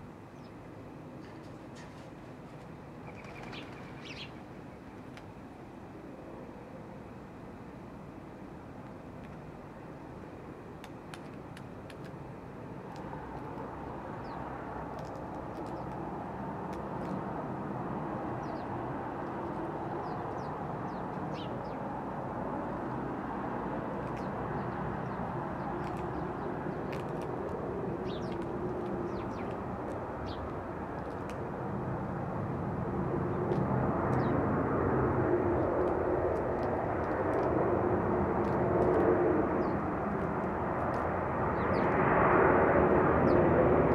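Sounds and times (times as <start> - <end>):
small birds chirping: 3.0 - 5.2, 14.2 - 16.1, 18.3 - 21.9, 23.9 - 31.4, 34.2 - 34.4, 41.5 - 42.0.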